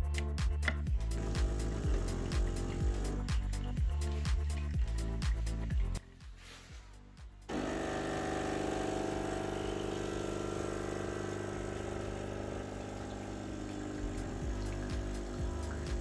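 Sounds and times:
espresso machine pump buzzing: 1.0s - 3.4s, 7.5s - 16.0s.

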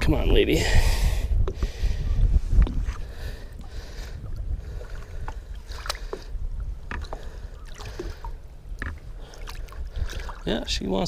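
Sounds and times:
steady low rumble: 0.0s - 10.4s
water splashing and lapping: 1.5s - 11.0s
small splashes and drips: 4.8s - 6.3s, 6.9s - 10.6s.

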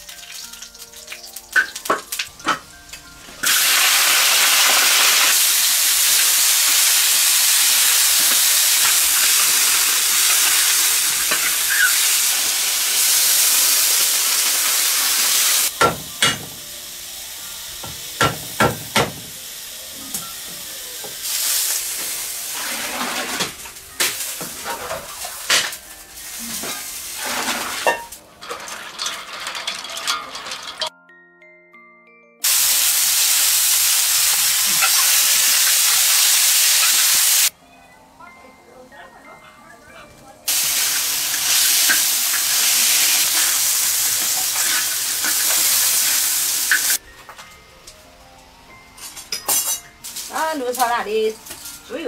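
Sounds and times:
meat sizzling in hot oil: 0.0s - 2.4s, 3.4s - 30.9s, 32.4s - 37.5s, 40.5s - 47.0s
metal spatula scraping wok: 22.4s - 23.7s, 24.4s - 25.7s, 26.5s - 30.9s.

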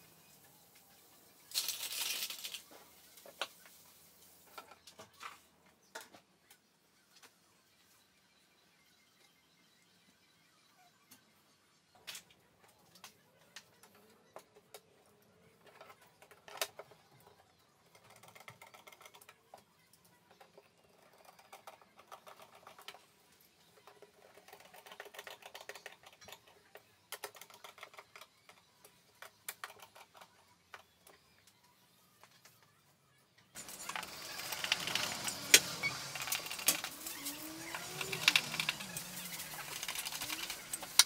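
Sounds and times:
screwdriver clicking and creaking: 33.6s - 41.0s.

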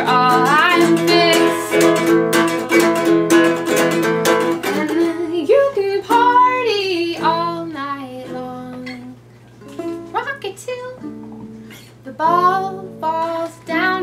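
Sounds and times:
woman singing: 0.0s - 3.3s, 4.5s - 9.2s, 10.1s - 11.2s, 12.0s - 14.0s
ukulele strumming: 0.0s - 14.0s.

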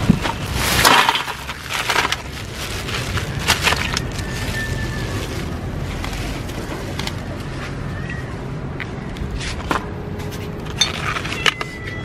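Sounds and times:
crabs rustling and scraping: 0.0s - 7.3s.

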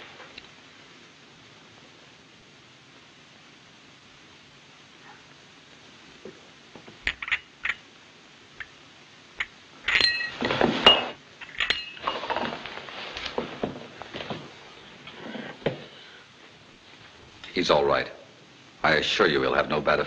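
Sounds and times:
china cup rattling on saucer: 7.1s - 7.8s, 9.4s - 12.3s.

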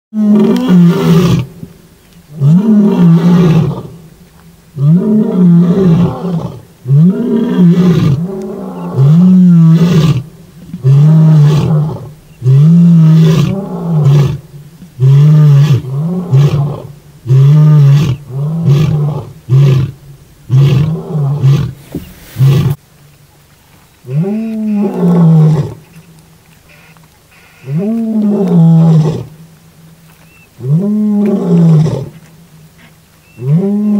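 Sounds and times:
lion roaring: 4.8s - 14.4s, 15.0s - 22.8s.

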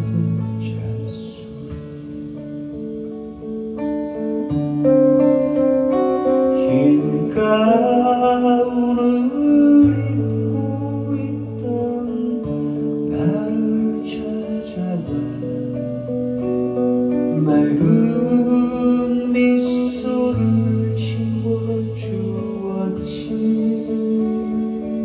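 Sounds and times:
man singing: 0.0s - 2.2s, 6.2s - 15.9s, 17.2s - 25.0s
acoustic guitar chords and notes: 0.0s - 25.0s.

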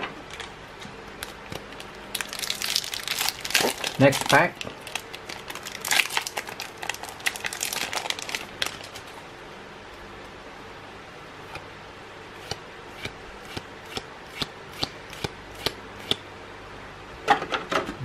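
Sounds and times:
foil wrapper crinkling: 1.2s - 9.2s.

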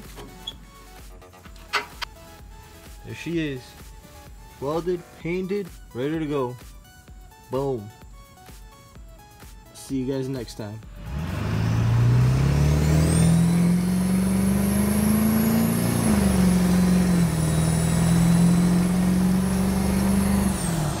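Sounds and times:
diesel engine accelerating: 10.8s - 21.0s.

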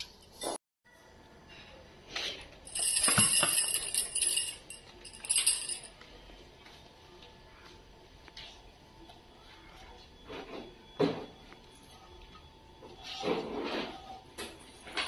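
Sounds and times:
light metallic jingling: 2.7s - 5.9s.

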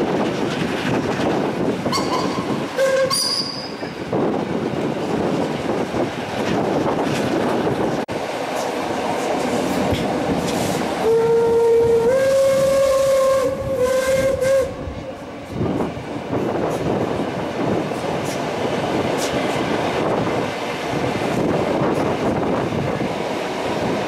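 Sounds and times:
wind through window: 0.0s - 3.1s, 9.6s - 24.0s
train running noise: 0.0s - 24.0s
steam locomotive whistle: 1.9s - 3.8s, 11.0s - 15.2s.

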